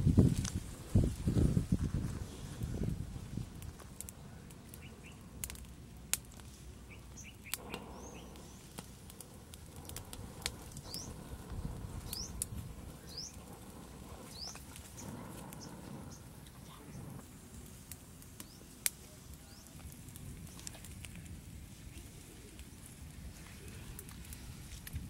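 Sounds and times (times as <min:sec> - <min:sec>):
twig fire crackling and popping: 0:00.0 - 0:25.0
bird chirping: 0:06.9 - 0:08.7, 0:12.0 - 0:13.5, 0:14.2 - 0:17.1.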